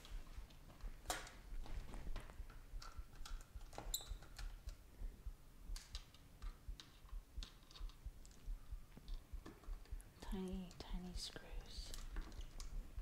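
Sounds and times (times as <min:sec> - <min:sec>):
screwdriver clicking and tapping: 0:02.8 - 0:04.8, 0:05.8 - 0:08.4.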